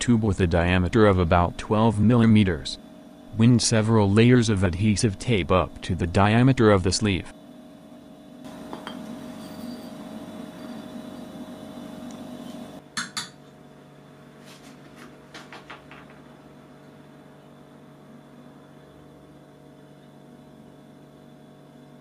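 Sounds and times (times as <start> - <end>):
low steady hum: 0.0 - 13.6.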